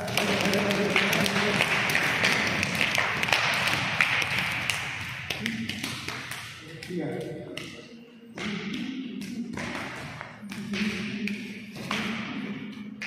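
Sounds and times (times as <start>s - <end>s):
group clapping and applauding: 0.0s - 7.8s.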